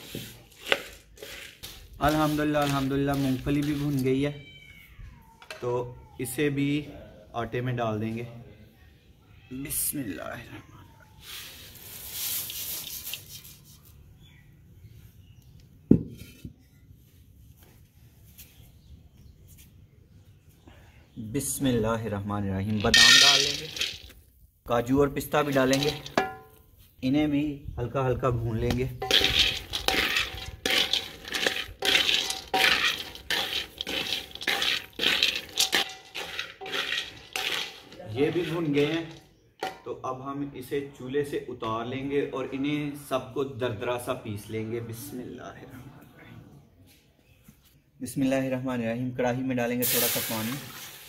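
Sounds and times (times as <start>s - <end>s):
peanuts pouring into metal basin: 0.0s - 4.1s, 22.8s - 24.1s, 25.4s - 26.3s, 29.0s - 39.2s, 49.8s - 51.0s
nuts rattling in metal pan: 0.5s - 4.1s, 22.8s - 24.1s, 25.4s - 26.3s, 29.0s - 39.8s.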